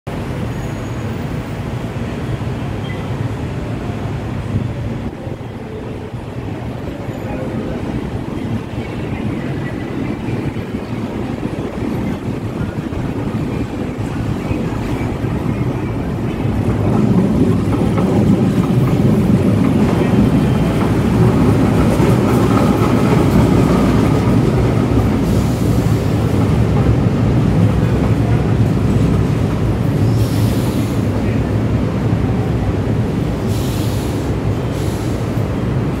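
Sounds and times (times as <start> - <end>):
train wheels rumbling on rail: 0.1 - 36.0
short hisses: 33.5 - 35.2.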